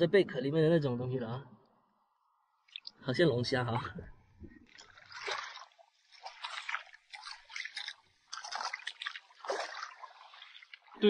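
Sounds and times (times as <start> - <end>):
footsteps splashing in water: 4.6 - 11.0.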